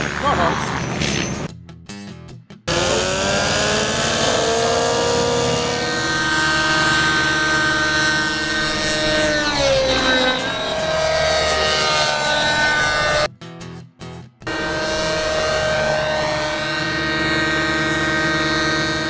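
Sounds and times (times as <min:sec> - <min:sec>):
model helicopter rotor whine: 0:02.7 - 0:13.3, 0:14.5 - 0:19.0.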